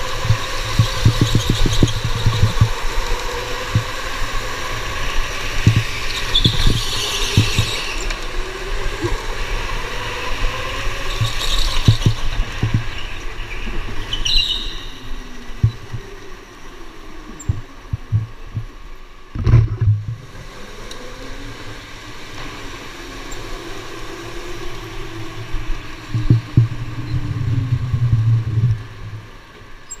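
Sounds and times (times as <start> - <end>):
low rumbling thumps: 11.1 - 13.1, 15.6 - 16.1, 17.4 - 20.2, 26.0 - 29.4.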